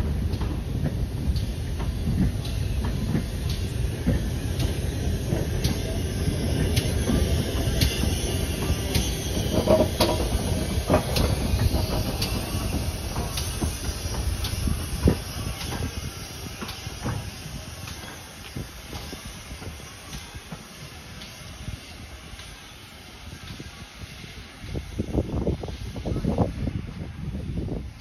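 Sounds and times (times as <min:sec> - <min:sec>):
train coaches rumbling past: 0:00.0 - 0:28.0
wheels clicking over rail joints: 0:00.1 - 0:21.5.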